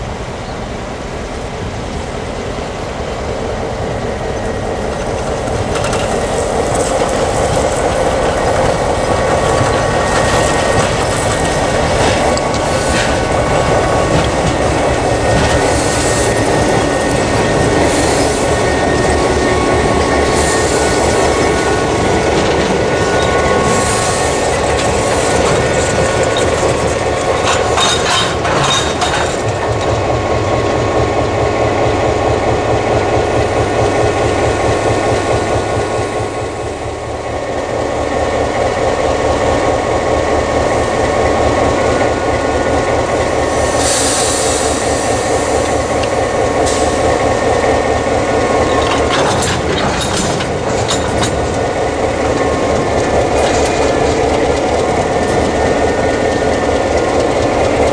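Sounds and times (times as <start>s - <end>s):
diesel locomotive engine rumble: 0.0s - 57.9s
wheels squeaking and clicking: 4.8s - 30.1s.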